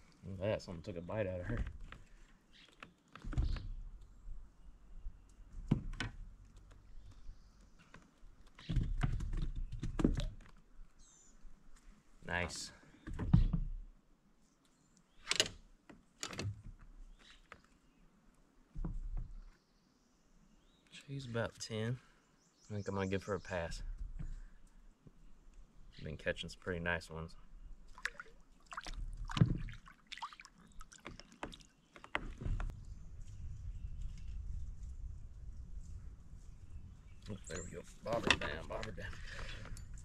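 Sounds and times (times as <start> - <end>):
fish splashing into water: 27.9 - 31.7.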